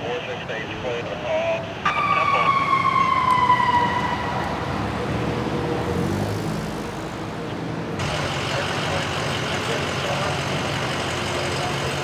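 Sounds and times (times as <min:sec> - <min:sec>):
street traffic: 0:00.0 - 0:12.0
vehicle engines idling: 0:00.0 - 0:12.0
emergency siren winding down: 0:01.8 - 0:06.2.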